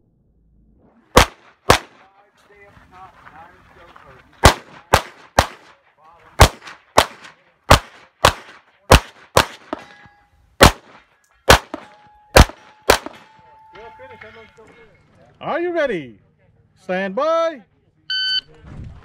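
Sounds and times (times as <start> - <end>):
pistol shots: 1.1 - 2.1, 4.4 - 5.8, 6.4 - 9.9, 10.6 - 13.3
faint ringing tone: 11.9 - 15.1.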